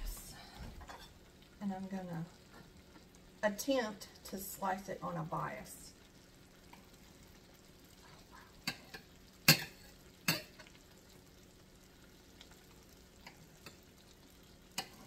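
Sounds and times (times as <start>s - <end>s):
faint steady hiss: 0.0s - 15.0s
cutlery clinking on a plate: 8.7s - 10.8s.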